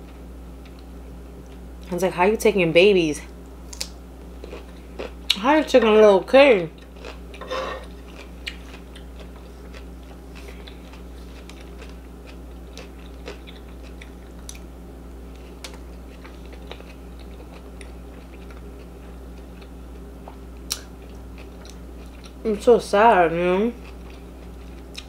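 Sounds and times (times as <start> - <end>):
steady low hum: 0.0 - 25.0
chewing food: 3.7 - 5.4, 6.7 - 14.7, 15.3 - 22.4, 23.8 - 25.0.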